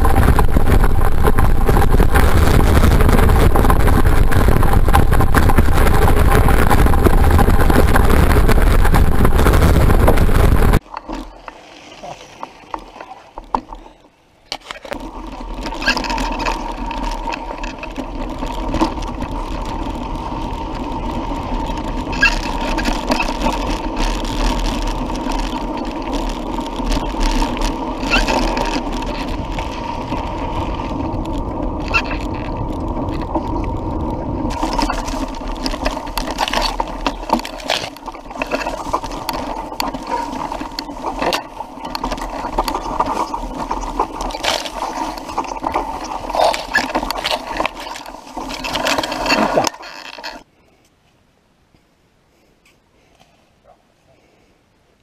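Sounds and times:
wind on microphone: 0.0s - 10.8s, 15.0s - 50.4s
bike knocks and rattles: 0.0s - 11.2s
bike tyres rumbling on dirt: 0.0s - 13.9s, 14.6s - 50.5s.

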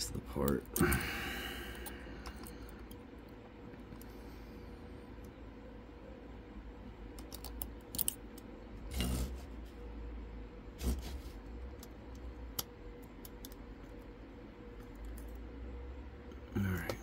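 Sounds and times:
lock pick metallic clicks: 7.2s - 8.2s.

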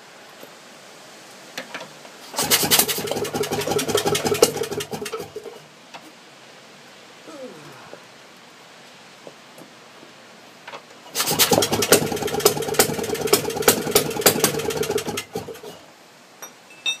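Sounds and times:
two-stroke engine crackling: 2.3s - 5.6s, 11.1s - 15.8s.

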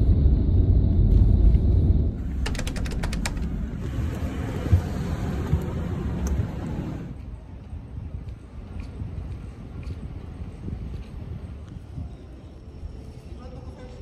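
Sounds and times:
bus rumbling: 0.0s - 14.0s
quick clicks: 2.3s - 3.7s
footsteps on stairs: 2.6s - 6.8s.

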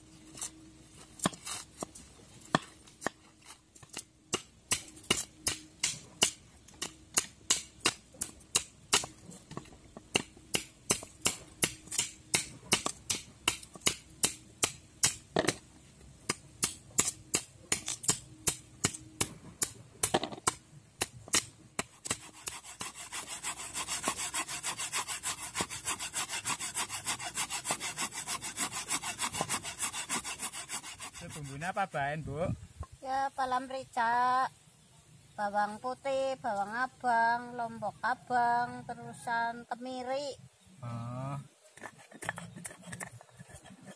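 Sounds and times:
coconut scraping on hand grater: 22.0s - 31.9s, 41.8s - 43.9s.

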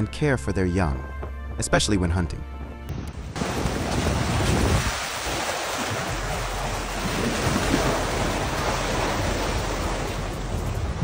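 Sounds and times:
wind buffeting microphone: 2.9s - 11.0s
sea water rushing and splashing: 3.3s - 11.0s.

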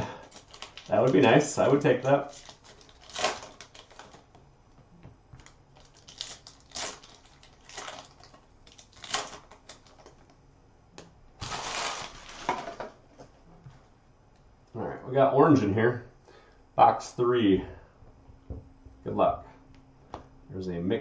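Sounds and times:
foil wrappers crinkling and tearing: 0.0s - 4.4s, 5.4s - 10.2s, 11.4s - 12.8s.

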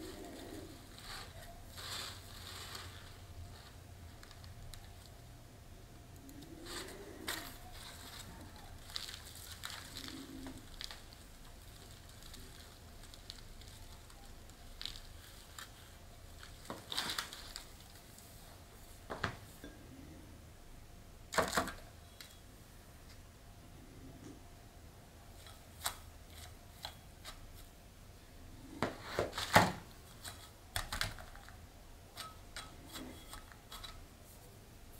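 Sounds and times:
leaves rustling: 0.0s - 5.1s, 6.5s - 18.5s
packing paper crinkling: 0.0s - 5.2s, 6.6s - 18.4s
potting soil crumbling: 0.0s - 5.2s, 6.4s - 18.3s, 28.8s - 34.5s.

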